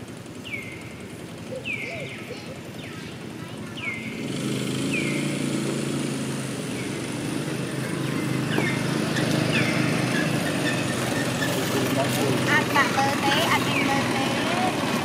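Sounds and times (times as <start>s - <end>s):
vehicle engine running: 0.0s - 15.0s
bird chirps: 0.4s - 5.4s, 8.3s - 11.6s.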